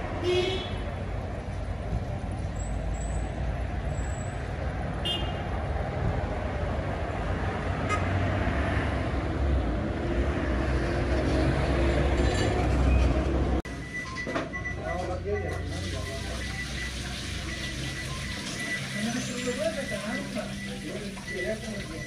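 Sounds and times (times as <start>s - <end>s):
traffic rumble: 0.0s - 22.0s
car horn beep: 0.2s - 0.8s, 5.0s - 5.5s, 7.9s - 8.1s.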